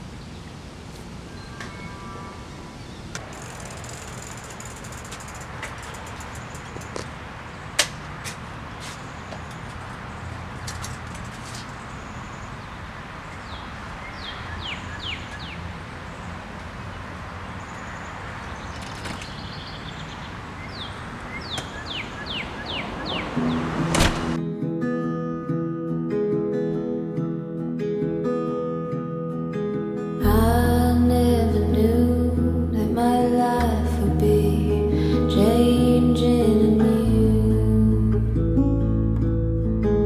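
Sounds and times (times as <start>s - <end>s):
bicycle clicks and knocks: 3.2s - 7.2s, 10.6s - 11.8s
birds chirping: 11.6s - 24.4s
steady low hum: 30.2s - 38.7s.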